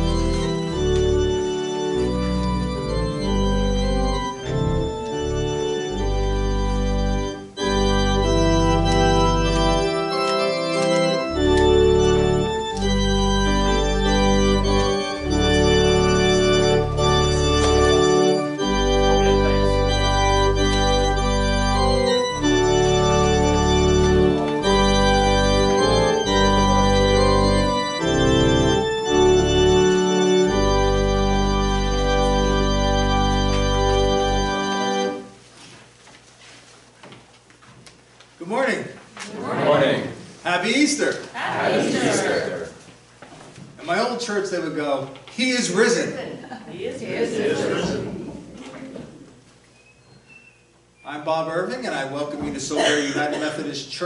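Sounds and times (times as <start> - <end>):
church organ playing: 0.0 - 35.4, 50.8 - 53.7.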